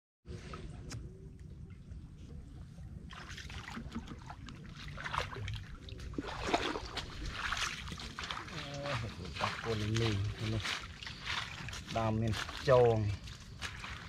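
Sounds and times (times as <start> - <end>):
water sloshing while wading: 0.4 - 14.0
stick scraping among leaves: 7.9 - 14.0.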